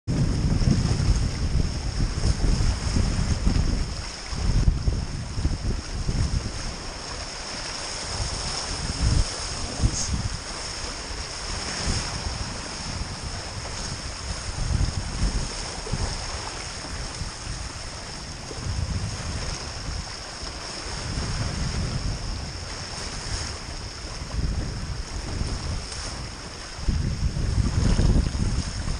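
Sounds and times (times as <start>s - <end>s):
wind buffeting microphone: 0.1s - 28.9s
hulls cutting through choppy water: 5.9s - 24.3s.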